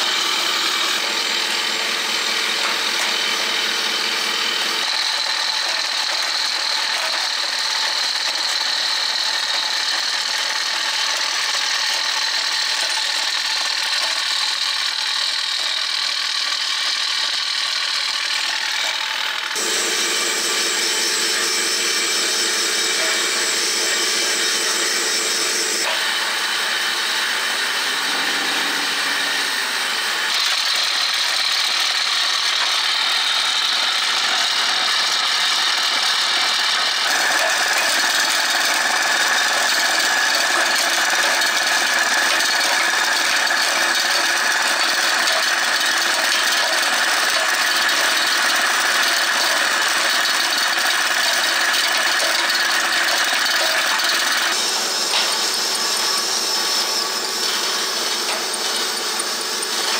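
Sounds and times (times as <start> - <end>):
electric motor whirring: 15.8 - 44.0, 50.5 - 59.9.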